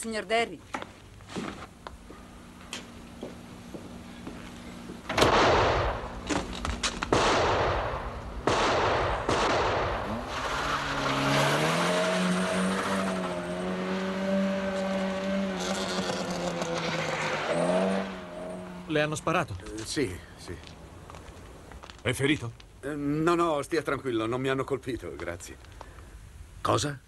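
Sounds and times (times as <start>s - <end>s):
gunshots with echo: 5.2s - 6.1s, 7.1s - 10.1s
car engine revving: 10.0s - 19.3s.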